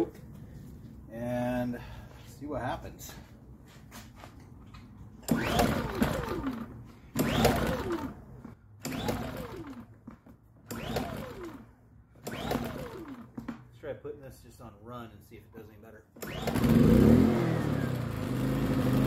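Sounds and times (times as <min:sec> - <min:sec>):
generator pull-start cranking: 0:04.7 - 0:13.6, 0:16.2 - 0:18.5.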